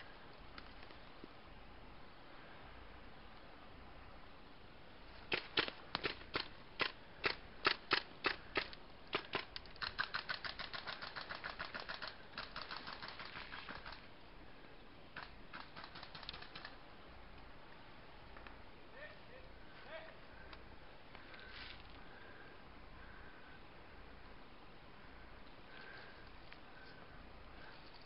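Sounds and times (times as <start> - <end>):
airsoft gunfire: 5.3 - 14.0, 15.2 - 16.8.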